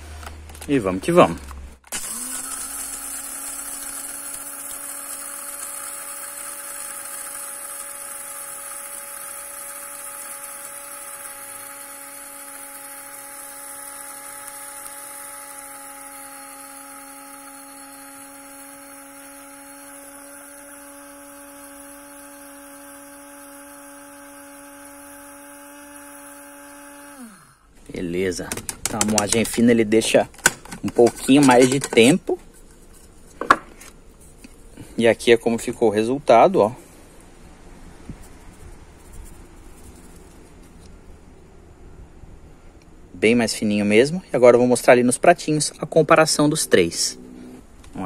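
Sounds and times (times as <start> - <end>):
coffee grinder motor whine: 0.0 - 32.1.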